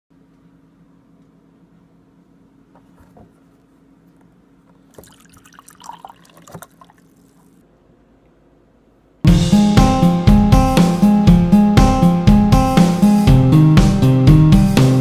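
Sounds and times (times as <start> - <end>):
drink pouring into plastic cup: 4.9 - 7.5.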